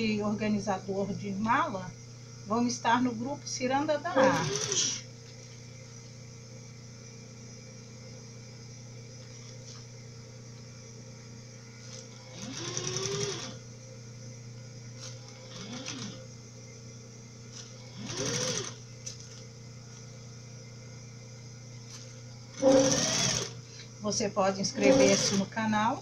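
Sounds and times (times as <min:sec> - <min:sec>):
steady low hum: 0:00.0 - 0:26.0
sewing machine motor whining: 0:04.1 - 0:05.1, 0:11.8 - 0:13.6, 0:15.0 - 0:16.3, 0:17.6 - 0:18.8, 0:22.5 - 0:23.6, 0:24.6 - 0:25.6.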